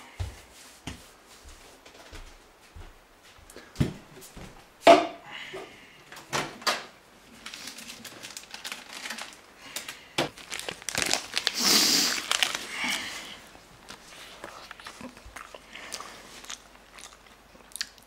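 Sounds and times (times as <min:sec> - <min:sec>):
plastic crisp bag crinkling: 0:07.2 - 0:17.3.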